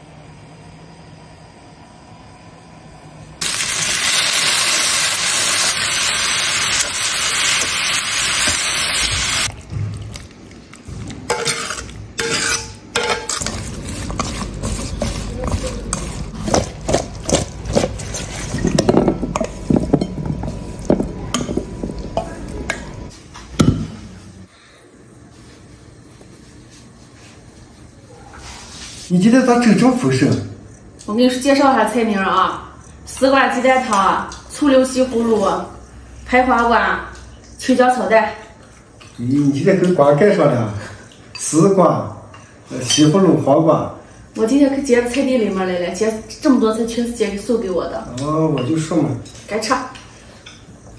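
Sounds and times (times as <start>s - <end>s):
hot oil sizzling: 3.4s - 22.2s
chopsticks clinking in metal bowl: 11.3s - 22.3s.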